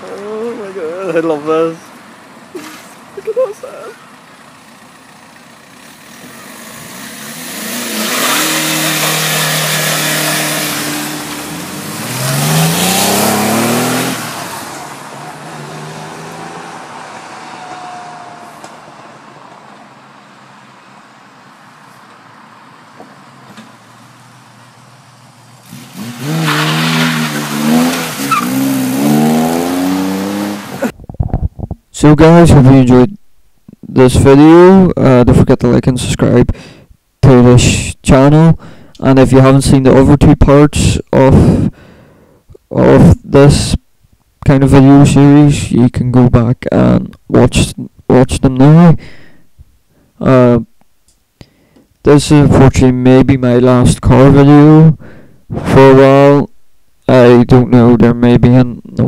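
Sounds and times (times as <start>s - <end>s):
cars accelerating past: 5.7s - 30.9s.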